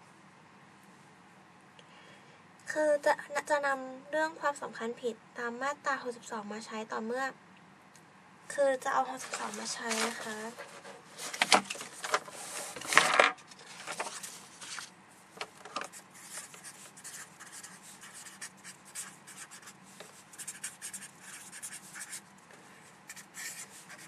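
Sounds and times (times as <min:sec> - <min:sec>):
paper rustling: 0:09.1 - 0:18.4
marker pen scratching on paper: 0:15.8 - 0:22.3, 0:23.1 - 0:24.0.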